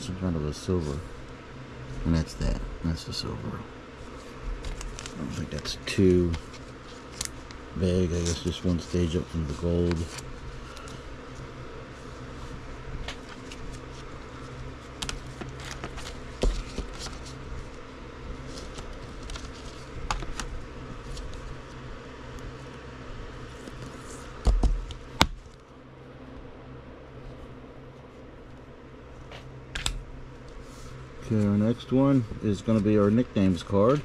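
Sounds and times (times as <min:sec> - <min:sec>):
steady low hum: 0:00.0 - 0:34.0
cards and sleeves clicking and tapping: 0:04.6 - 0:07.4, 0:08.1 - 0:11.0, 0:15.0 - 0:17.3, 0:18.5 - 0:20.5.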